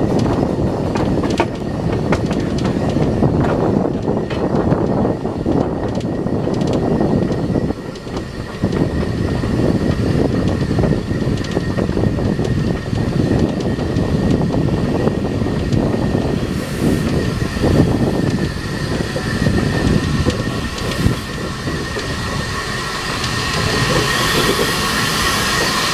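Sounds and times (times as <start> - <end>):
train wheels rumbling on rail: 0.0 - 25.9
wind buffeting microphone: 0.0 - 25.9
wheel flange squeal: 16.0 - 25.9.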